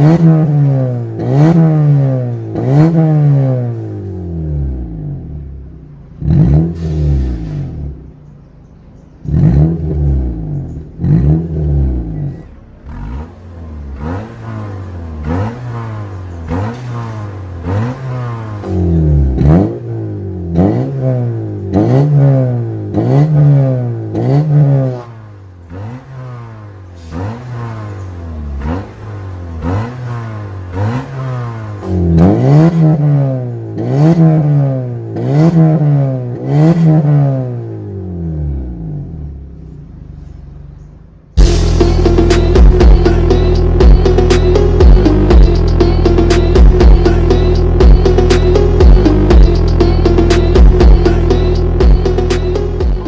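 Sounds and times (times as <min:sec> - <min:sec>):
car engine revving: 0:00.0 - 0:53.0.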